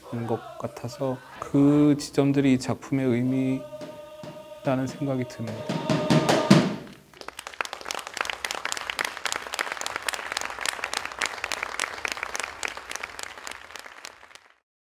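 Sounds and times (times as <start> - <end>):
audience applauding: 6.4 - 14.6.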